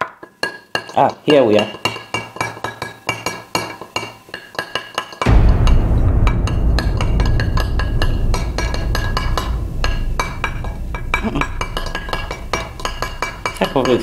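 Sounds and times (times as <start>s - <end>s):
deep low drone: 5.3s - 14.0s.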